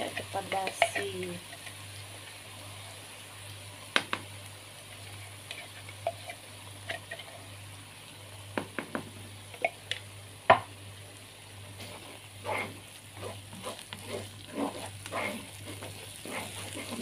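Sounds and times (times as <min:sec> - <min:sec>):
spatula tapping and scraping pan: 0:00.0 - 0:01.8, 0:11.8 - 0:17.0
paste sizzling in oil: 0:00.0 - 0:17.0.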